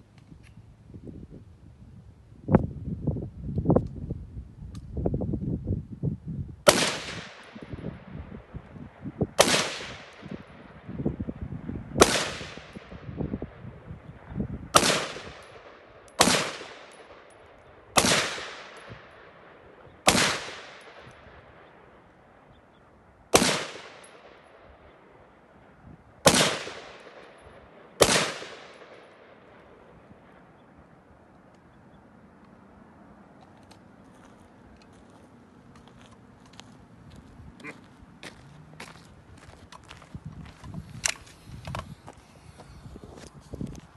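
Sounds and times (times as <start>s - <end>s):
rifle shots with echo: 6.7s - 8.3s, 9.4s - 10.8s, 12.0s - 13.6s, 14.7s - 22.5s, 23.3s - 25.3s, 26.2s - 30.6s.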